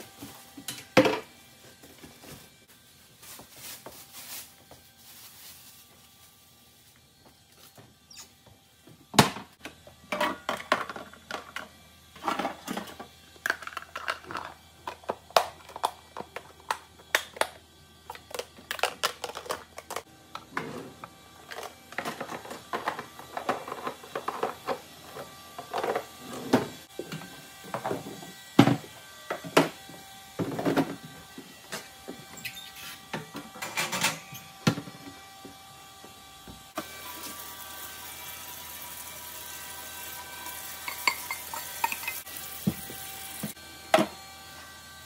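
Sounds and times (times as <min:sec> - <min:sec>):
plastic containers clattering: 0:18.3 - 0:20.0.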